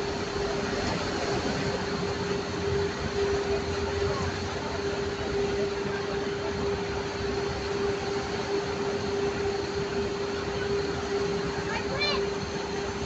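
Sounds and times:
constant hum: 0.0s - 13.0s.

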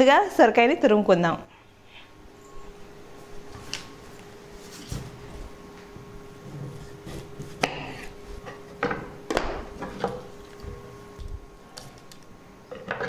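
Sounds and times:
peeler scraping gourd skin: 6.5s - 8.5s.

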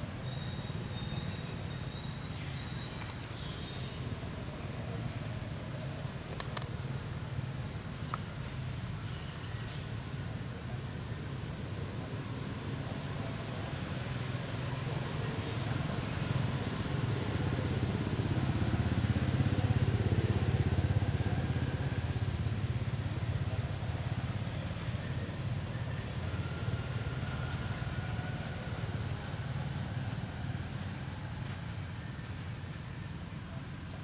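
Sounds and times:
vehicle engine rumble passing: 9.7s - 34.0s.

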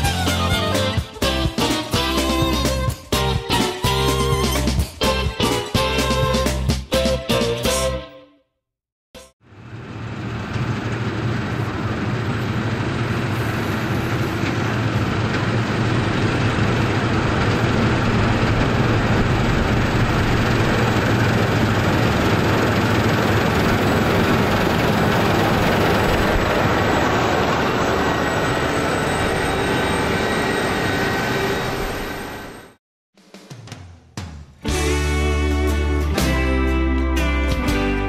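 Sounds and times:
combine harvester engine drone: 9.5s - 32.6s.

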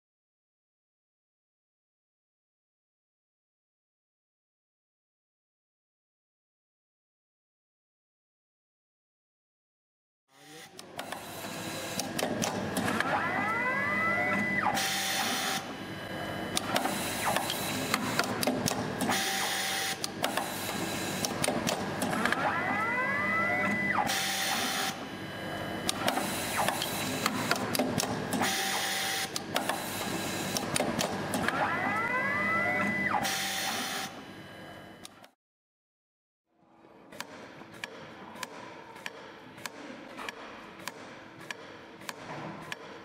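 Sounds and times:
machine motor whine: 10.3s - 35.2s
mechanical clatter and clicks: 11.9s - 13.1s, 16.6s - 22.4s, 25.9s - 28.5s, 29.3s - 31.6s.

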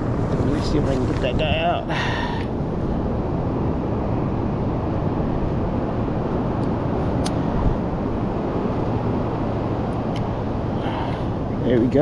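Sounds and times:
wind: 0.0s - 12.0s.

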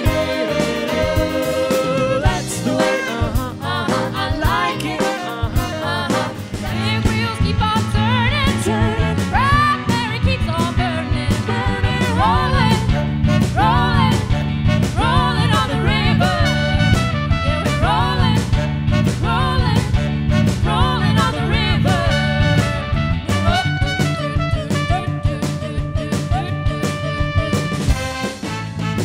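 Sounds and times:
women singing with vibrato: 0.0s - 14.3s, 15.0s - 16.8s, 17.5s - 18.5s, 19.2s - 19.9s, 20.6s - 27.8s
live band playing: 0.0s - 29.0s.

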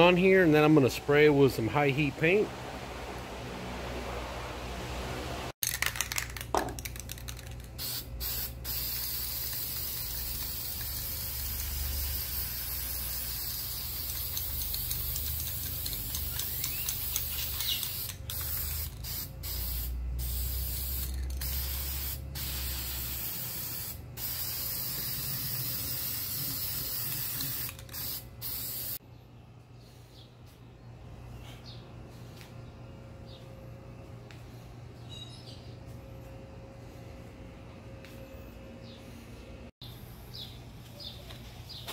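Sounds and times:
paint spray hissing: 7.0s - 29.0s.

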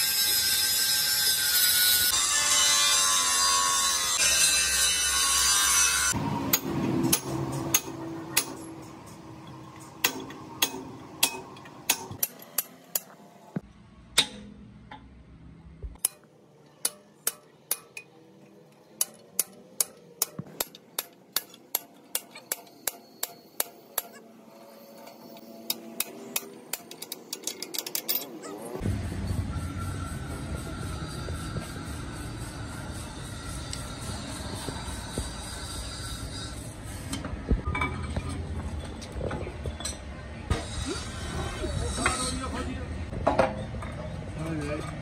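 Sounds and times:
angle grinder cutting steel: 0.0s - 9.2s, 29.6s - 37.1s, 40.5s - 42.8s.

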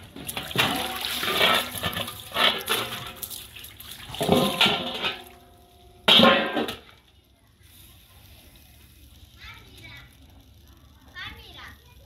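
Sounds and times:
water splashing in metal basin: 0.0s - 6.9s
water dumping onto concrete floor: 0.0s - 7.0s
running hose: 0.0s - 12.0s.

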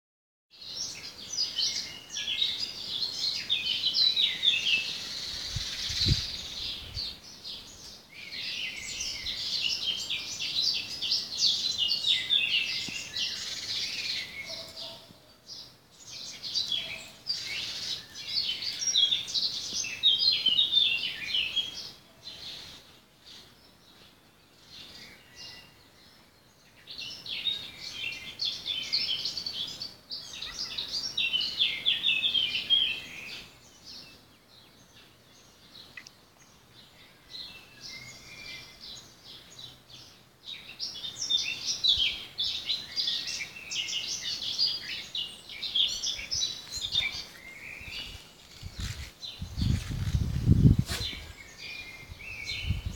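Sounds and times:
songbirds chirping: 0.5s - 52.9s.

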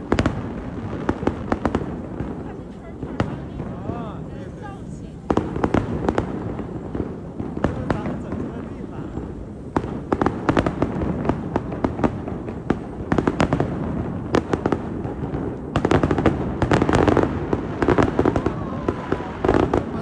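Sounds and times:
fireworks bangs and crackles: 0.0s - 20.0s.

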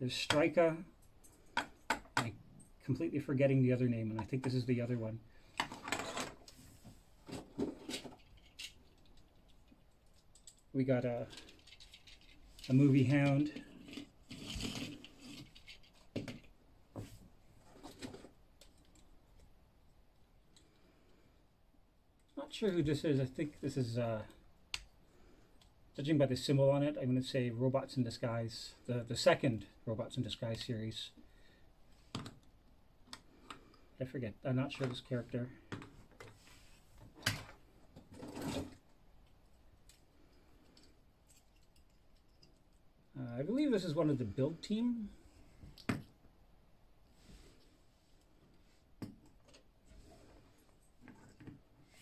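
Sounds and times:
faint handling of plastic figures: 0.0s - 27.4s, 28.1s - 52.0s
plastic figures rustling clatter: 5.6s - 6.6s, 7.2s - 16.5s, 17.6s - 19.1s
plastic toy rustling: 11.3s - 16.4s.

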